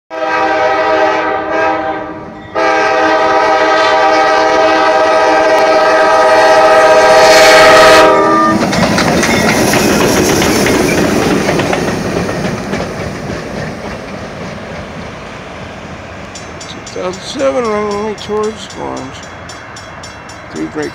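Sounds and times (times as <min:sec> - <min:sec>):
locomotive horn blasts: 0:00.1 - 0:08.6
diesel locomotive engine rumbling: 0:00.2 - 0:20.9
wheels rumbling on rails: 0:03.3 - 0:20.9.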